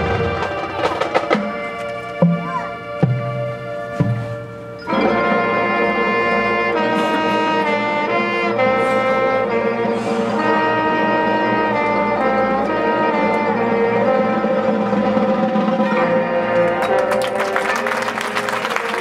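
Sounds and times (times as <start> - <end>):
brass section chords: 0.0 - 19.0
marching band playing: 0.0 - 19.0.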